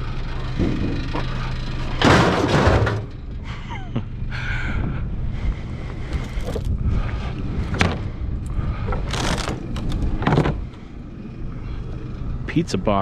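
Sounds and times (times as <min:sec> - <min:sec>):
vehicle engine running: 0:00.0 - 0:13.0
clatters and knocks: 0:00.4 - 0:03.4.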